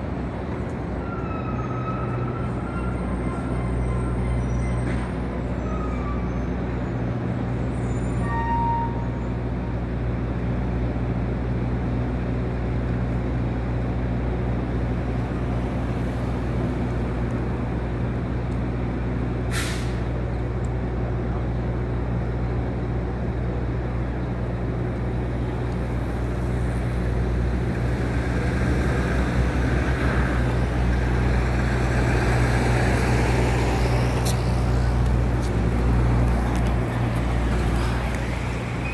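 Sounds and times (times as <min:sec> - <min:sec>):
large vehicle engines rumbling: 0:00.0 - 0:38.9
passing traffic: 0:00.0 - 0:38.9
short hiss: 0:19.5 - 0:20.1.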